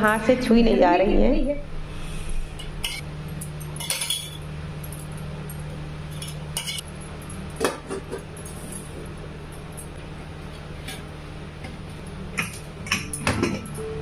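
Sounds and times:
low hum: 0.0 - 14.0
utensils and bangles clinking: 2.8 - 6.8.

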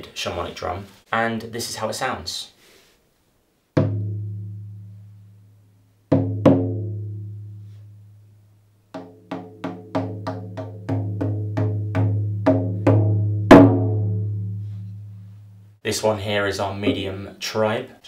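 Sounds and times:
frame drum booming: 3.8 - 4.9, 9.3 - 15.2.

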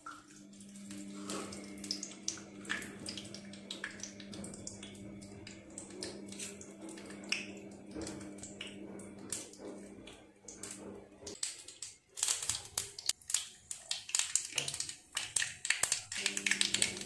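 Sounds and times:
seeds popping in hot oil: 11.3 - 17.0.

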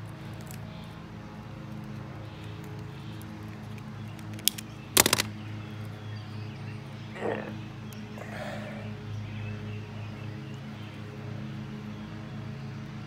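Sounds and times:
plastic clicks and snaps: 3.7 - 5.3.

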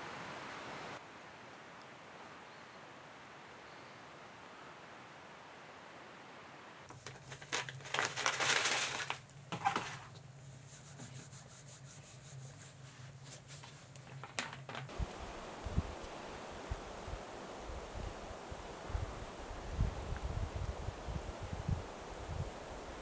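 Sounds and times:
wood fire crackling: 6.9 - 10.4, 13.0 - 23.0
rustling: 6.9 - 20.3
wind on microphone: 14.9 - 23.0.

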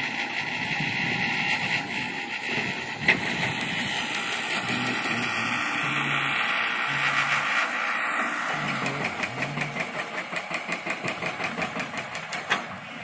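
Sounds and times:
engine and machinery noise: 0.0 - 13.0
low drone: 0.7 - 10.2.

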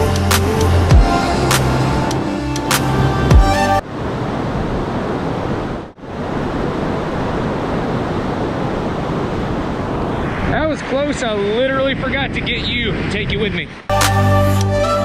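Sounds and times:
background music: 0.0 - 3.8, 13.9 - 15.0.

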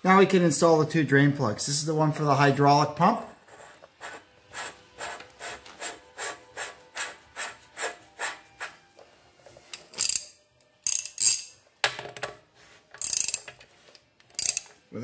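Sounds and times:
ratchet wrench clicking: 9.7 - 11.6, 13.0 - 13.6, 14.3 - 14.8.

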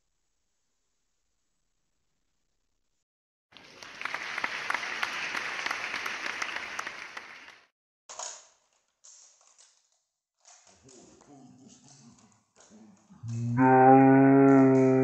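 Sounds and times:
crowd applause: 3.6 - 7.7.

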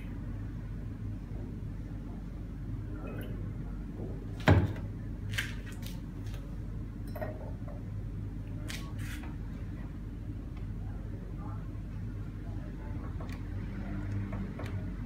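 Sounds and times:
steady low hum: 0.0 - 15.0
glassware clinking on bench: 7.0 - 7.6.

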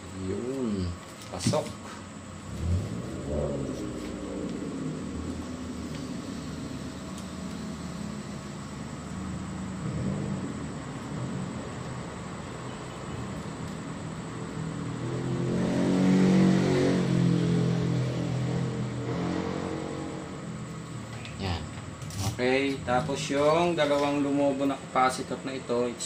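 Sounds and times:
low motor hum: 2.2 - 15.8.

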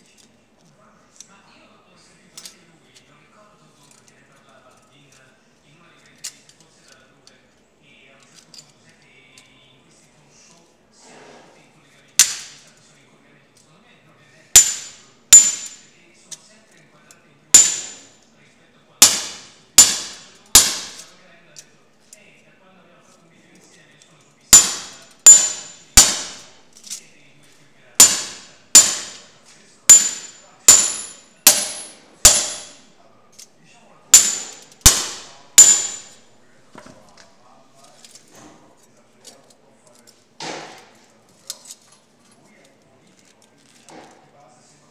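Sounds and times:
hammer striking copper sheet: 12.2 - 12.6, 14.5 - 15.9, 17.5 - 18.2, 19.0 - 21.1, 24.5 - 26.6, 28.0 - 32.9, 34.1 - 36.2
tools clinking: 14.5 - 18.3, 23.1 - 44.2.

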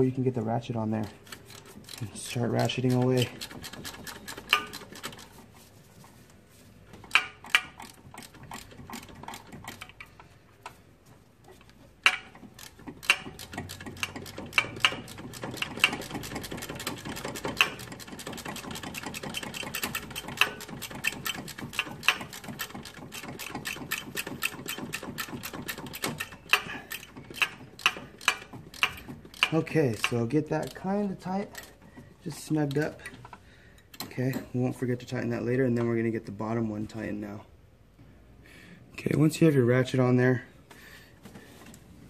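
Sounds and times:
hand ratchet clicking: 1.2 - 5.4, 7.0 - 10.3, 12.0 - 32.9.

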